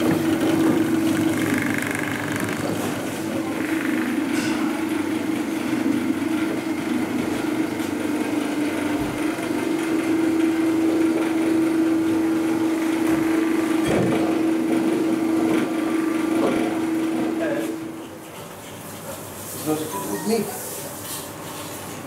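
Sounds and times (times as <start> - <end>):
machine motor hum: 0.0 - 17.9.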